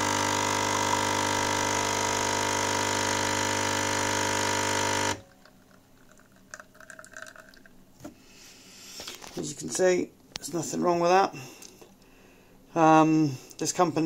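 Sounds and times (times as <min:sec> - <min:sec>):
coffee machine pump buzzing: 0:00.0 - 0:07.6.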